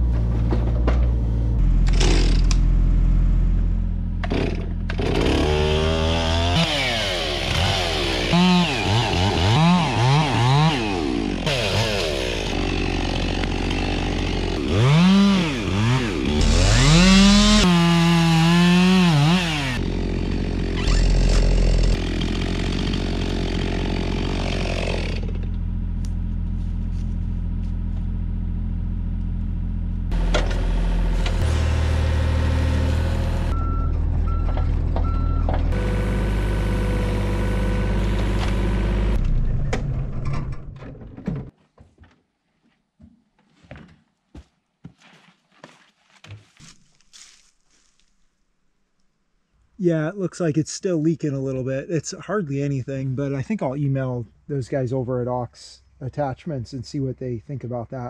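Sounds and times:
diesel excavator engine running: 0.0 - 6.5, 19.6 - 41.5
hydraulic whine: 34.4 - 40.0.

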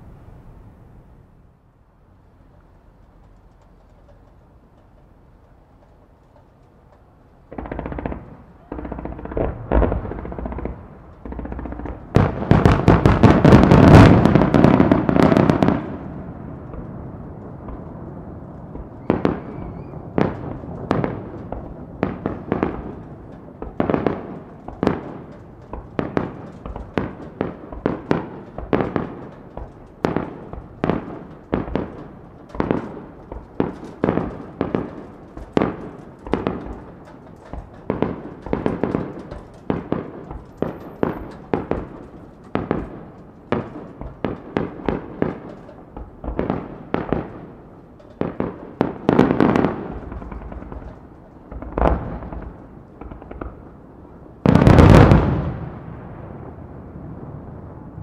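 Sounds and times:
firework shells bursting: 3.1 - 55.7.

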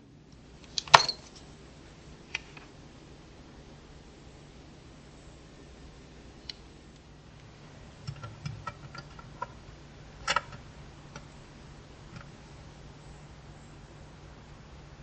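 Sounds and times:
low steady hum: 0.0 - 15.0
small hard parts clicking: 8.0 - 9.6, 10.2 - 11.4.

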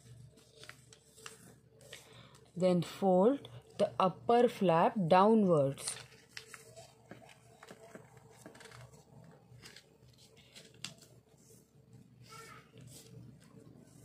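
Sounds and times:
paper rustling and creasing: 0.0 - 2.5, 5.7 - 14.0.

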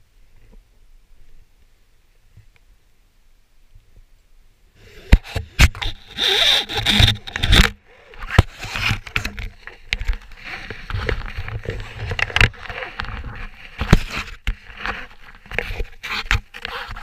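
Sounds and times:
gear rustling at microphone: 4.8 - 17.0.

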